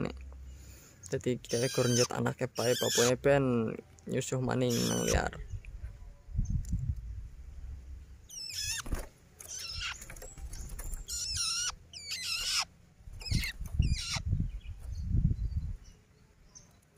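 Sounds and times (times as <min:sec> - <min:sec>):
young shrike begging calls: 0:01.5 - 0:03.2, 0:04.7 - 0:05.3, 0:13.3 - 0:14.2.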